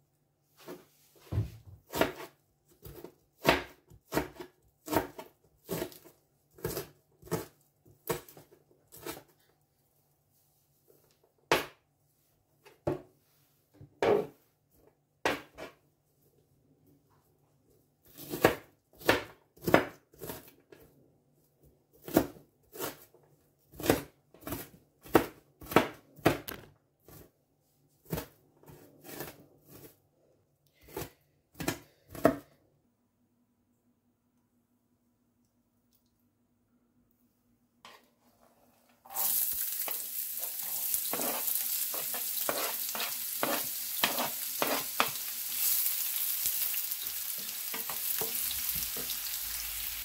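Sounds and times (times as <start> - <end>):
knife chopping on cutting board: 1.4 - 9.2, 18.2 - 20.5, 23.7 - 26.6, 41.1 - 45.2.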